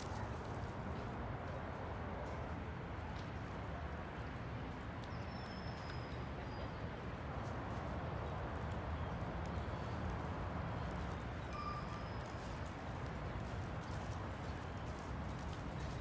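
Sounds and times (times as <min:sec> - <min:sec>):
outdoor background noise: 0:00.0 - 0:16.0
footsteps crunching on mulch: 0:11.5 - 0:16.0.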